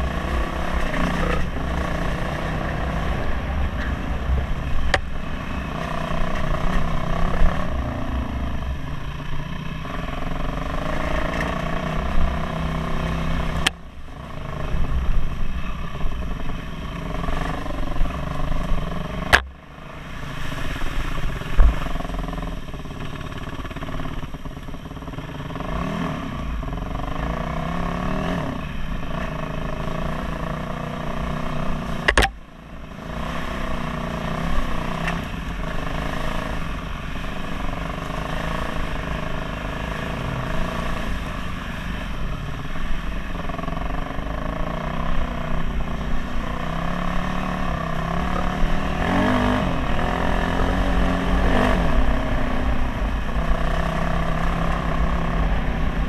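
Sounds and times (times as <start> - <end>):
dirt bike engine revving: 0.0 - 19.6, 20.4 - 32.3, 43.4 - 56.0
sharp click: 32.1 - 32.4.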